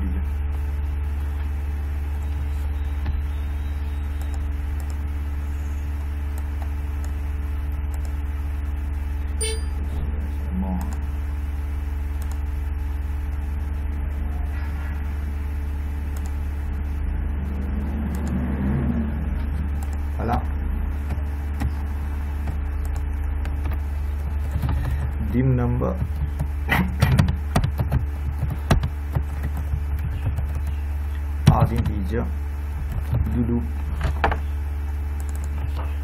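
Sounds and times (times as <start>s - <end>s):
steady low hum: 0.0s - 36.0s.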